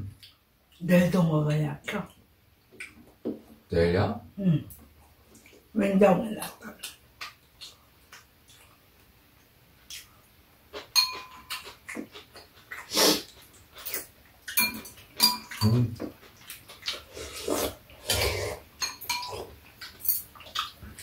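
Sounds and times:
people slurping and chewing: 9.9 - 21.0
metal utensils clinking on bowls: 10.9 - 11.7, 14.5 - 16.1, 18.1 - 20.3.

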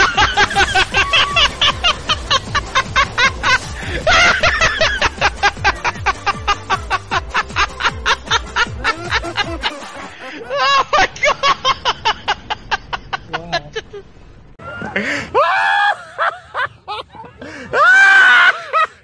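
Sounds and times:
music with low bass: 0.0 - 10.2
laughter: 0.0 - 14.0, 14.8 - 19.0.

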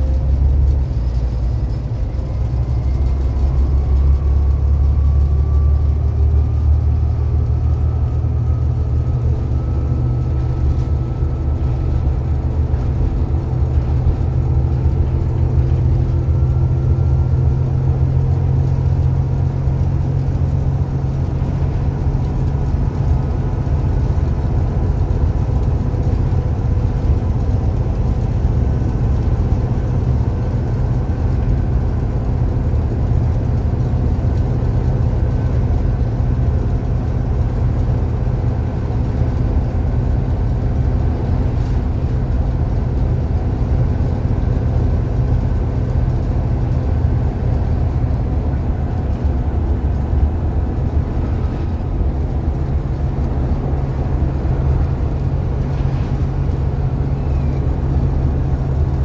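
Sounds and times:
bus engine drone: 0.0 - 59.0
road noise: 0.0 - 59.0
faint whine: 47.9 - 59.0.

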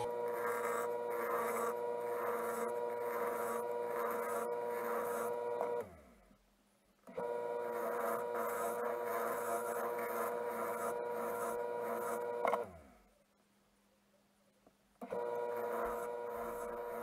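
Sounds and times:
turning tool scraping wood: 0.0 - 5.9, 7.2 - 12.7, 15.1 - 17.0
wood lathe motor whine: 0.0 - 6.0, 7.1 - 12.7, 15.0 - 17.0.

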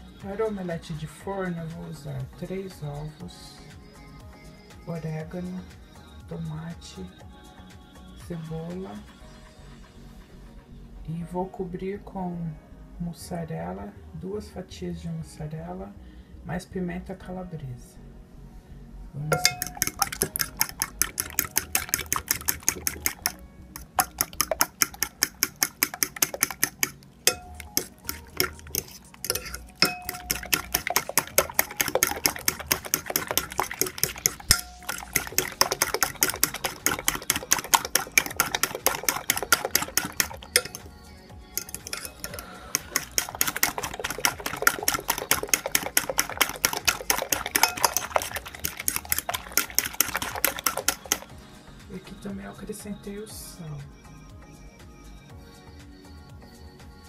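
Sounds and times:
fork clicking against glass dish: 19.4 - 40.9, 41.6 - 51.3.

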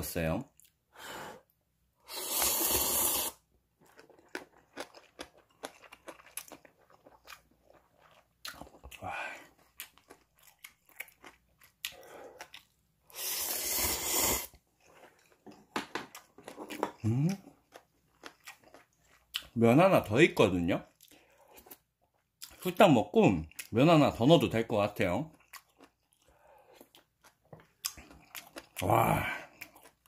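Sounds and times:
loud slurp: 2.1 - 3.4, 13.1 - 14.6
wet chewing: 3.8 - 13.4, 14.0 - 19.6, 25.3 - 30.0.

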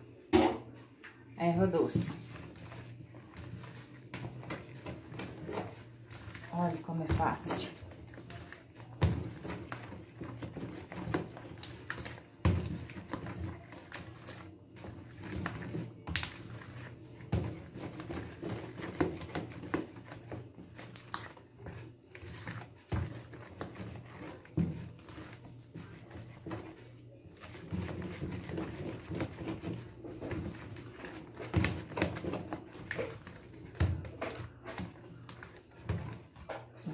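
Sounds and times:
spoon knocking and scraping bowl: 1.6 - 36.9
wet slaps of batter: 3.3 - 26.1.

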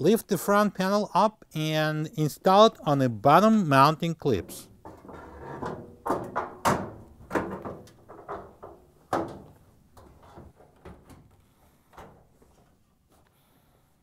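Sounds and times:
metal panel clunking and rattling: 4.8 - 11.4.

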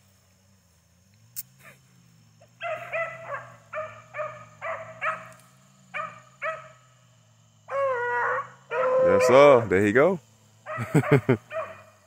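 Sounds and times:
dog barking: 2.6 - 5.3, 5.9 - 6.8, 10.7 - 11.9.

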